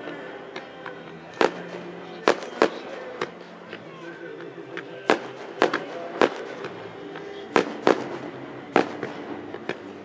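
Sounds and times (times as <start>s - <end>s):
fireworks crackles: 1.2s - 3.4s, 5.0s - 10.0s
fireworks booming: 1.4s - 3.3s, 5.1s - 6.8s, 7.5s - 9.9s.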